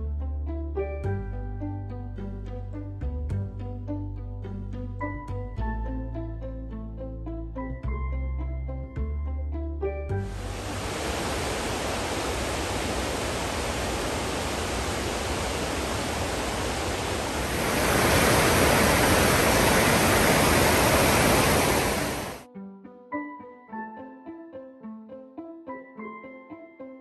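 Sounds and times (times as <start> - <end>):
piano music: 3.8 - 10.7
stream rushing over boulders: 10.2 - 22.4.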